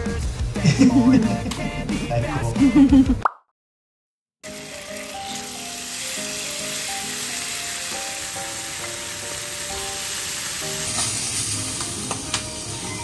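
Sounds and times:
fish sizzling in a frying pan: 4.4 - 13.0.

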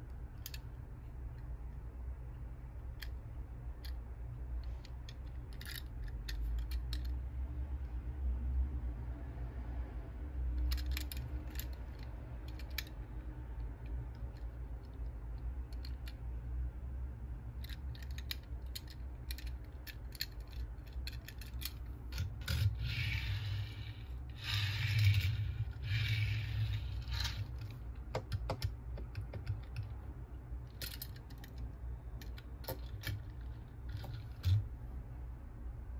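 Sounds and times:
toy car clicks and taps: 0.4 - 0.7, 5.1 - 7.2, 10.6 - 13.0, 17.6 - 29.9, 30.7 - 31.6
toy car wheels rolling on wood: 18.1 - 28.4.

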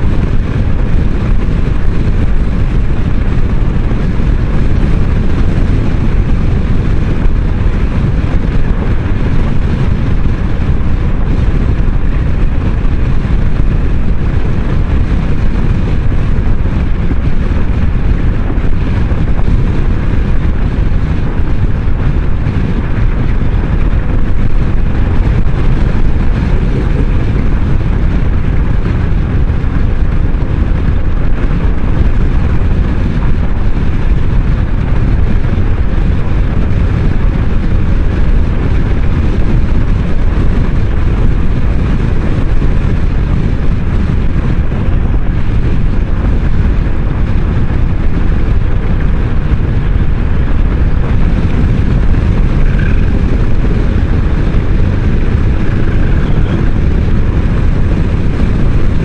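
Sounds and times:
road noise: 0.0 - 59.0
wind rushing on microphone: 0.0 - 59.0
scooter engine: 51.4 - 57.1.

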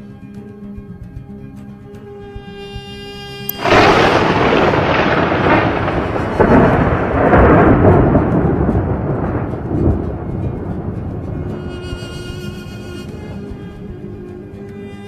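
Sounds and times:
thunder crack and rumble: 3.6 - 13.9.

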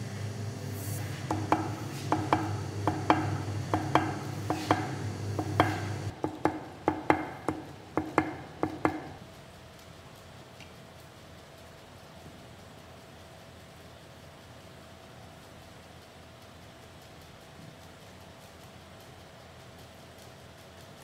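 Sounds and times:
steady low hum: 0.0 - 21.0
hammer tapping metal on stone: 1.3 - 9.2.

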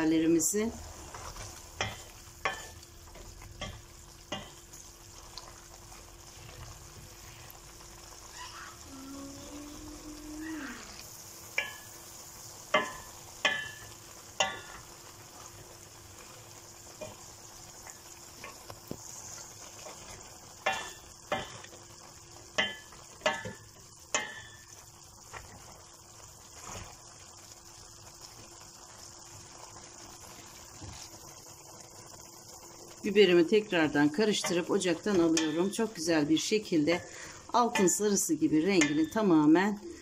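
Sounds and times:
wooden spoon stirring: 0.0 - 7.8, 12.7 - 27.3
low sizzle: 0.0 - 40.0
wooden spoon knocking on pot: 1.8 - 4.6, 12.7 - 14.8, 20.6 - 21.7, 22.5 - 25.4, 34.4 - 35.9.

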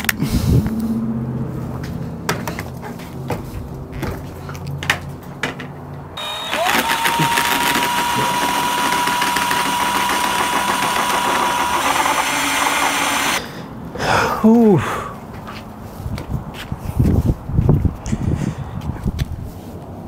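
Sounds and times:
electric drill whining: 6.2 - 13.4.

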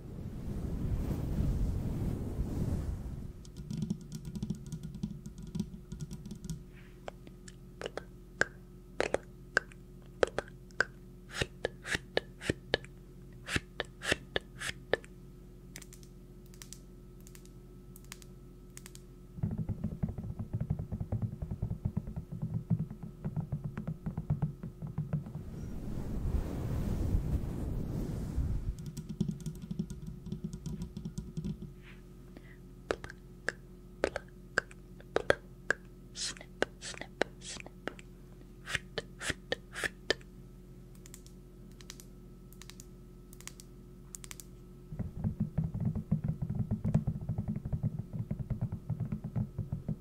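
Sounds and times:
sharp taps and clicks: 3.5 - 6.6, 28.8 - 31.7
low rushing noise: 25.4 - 28.8.

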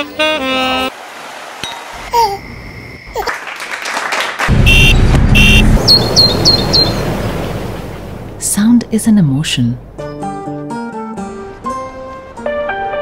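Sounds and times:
car horn toots: 0.0 - 0.9, 4.5 - 5.8
loud traffic noise: 0.0 - 2.9, 4.5 - 7.9.

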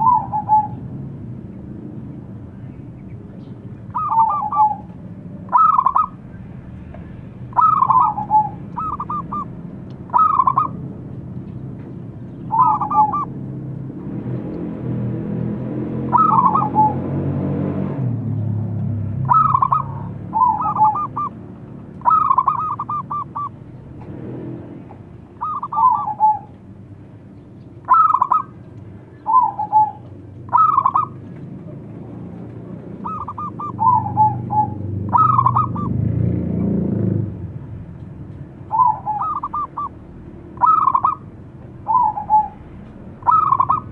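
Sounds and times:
dove cooing: 0.0 - 0.9, 3.8 - 6.3, 7.5 - 10.8, 12.5 - 13.4, 16.0 - 17.2, 19.2 - 21.4, 22.0 - 23.6, 25.3 - 26.6, 27.8 - 36.0, 38.6 - 43.9.

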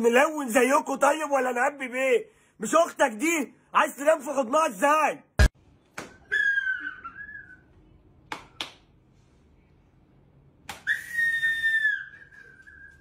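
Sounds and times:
high steady whistle: 10.8 - 13.0.

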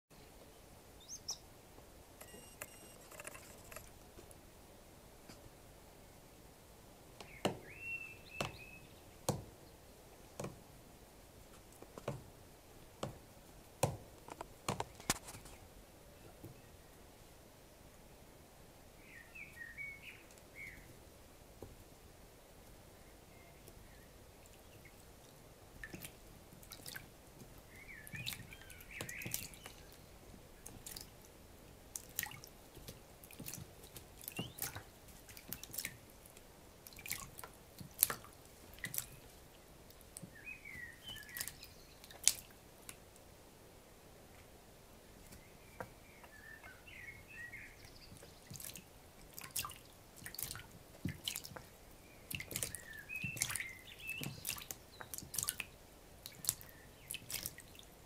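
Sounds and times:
bird splashing in water: 25.8 - 27.1, 27.8 - 30.0, 30.6 - 31.2, 31.9 - 39.4, 41.0 - 42.6, 48.1 - 57.9.

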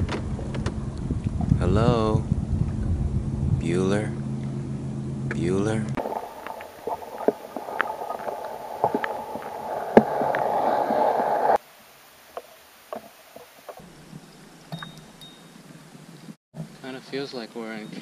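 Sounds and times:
muffled underwater water noise: 5.9 - 14.7
underwater clicks and pops: 6.0 - 11.6.

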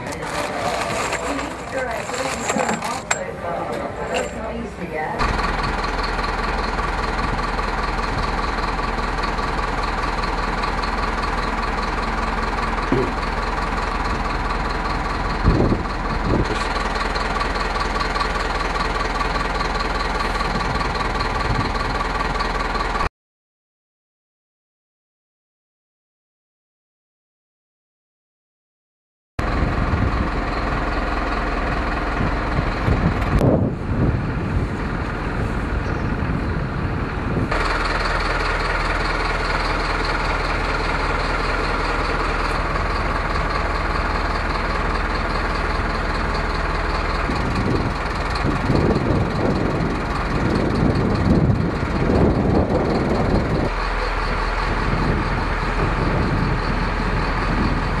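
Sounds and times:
low rumbling swells: 29.4 - 58.0.

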